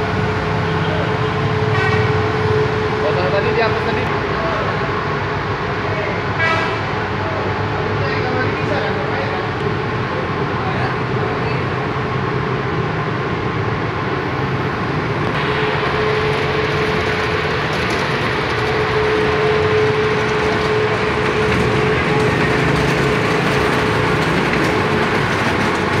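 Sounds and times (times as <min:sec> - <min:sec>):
vehicle running nearby: 0:00.0 - 0:26.0
steady tone: 0:15.1 - 0:24.1.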